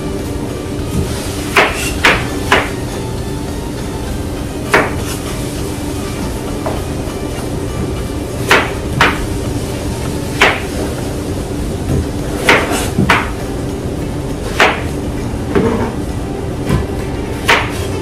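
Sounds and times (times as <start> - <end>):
steady background hum: 0.0 - 18.0
sharp hard knocks: 8.5 - 9.2, 10.4 - 10.7, 11.9 - 13.4.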